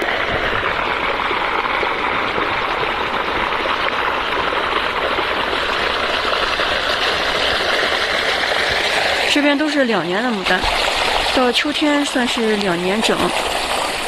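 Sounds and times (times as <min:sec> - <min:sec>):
water rushing through furrows: 0:00.0 - 0:14.0.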